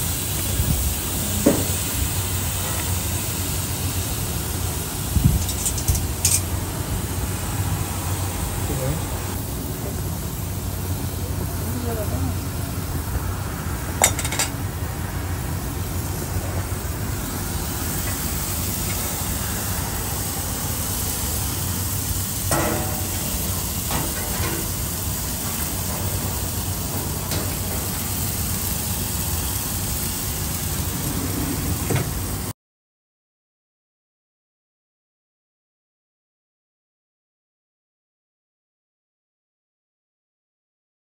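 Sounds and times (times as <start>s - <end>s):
steaks sizzling on a grill: 0.0s - 12.8s, 15.9s - 32.4s.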